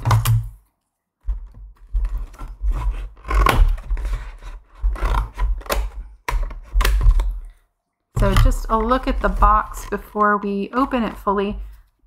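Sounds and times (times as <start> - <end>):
handling bumps: 8.2 - 11.8.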